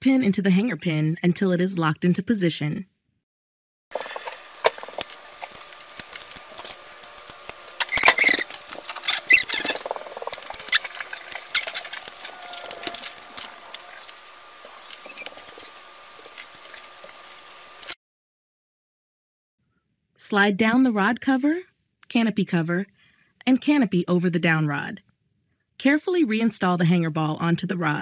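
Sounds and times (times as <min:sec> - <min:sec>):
small parts clicking and scraping: 0:03.9 - 0:18.0
faint high hum: 0:04.0 - 0:18.0.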